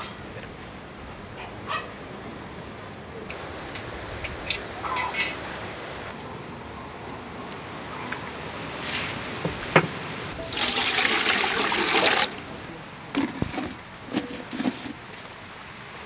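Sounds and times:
water splashing in metal pot: 10.4 - 12.4.

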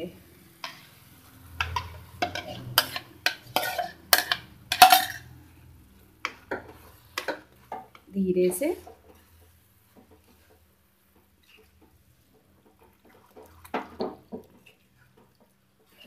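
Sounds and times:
spoon scraping bowl and pan: 0.5 - 16.0.

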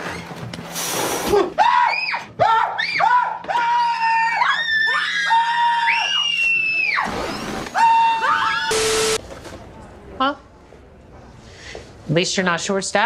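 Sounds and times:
high-pitched screaming: 4.0 - 9.2.

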